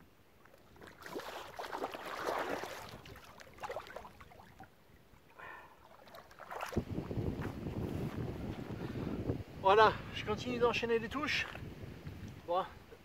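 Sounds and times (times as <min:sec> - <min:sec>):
water splashing and sloshing: 0:00.3 - 0:08.7.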